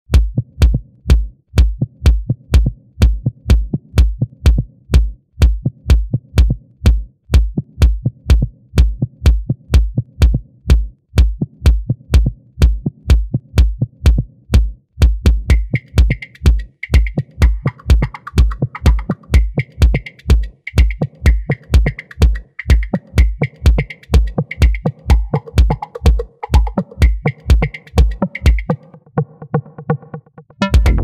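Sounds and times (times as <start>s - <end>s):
heavy kick drum beat: 0.1s - 31.0s
electronic dance music: 15.5s - 28.8s, 30.6s - 31.0s.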